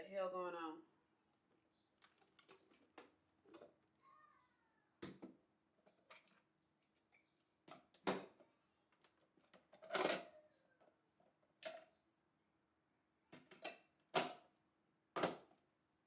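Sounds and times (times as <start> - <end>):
plastic knocks and clunks: 5.0 - 5.4, 7.7 - 8.4, 15.2 - 15.6.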